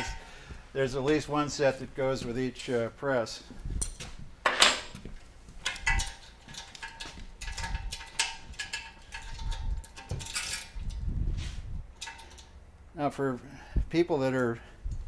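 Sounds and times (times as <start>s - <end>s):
wrenches clinking on metal: 5.6s - 11.0s, 12.0s - 12.6s
rustling scrape: 10.4s - 11.8s.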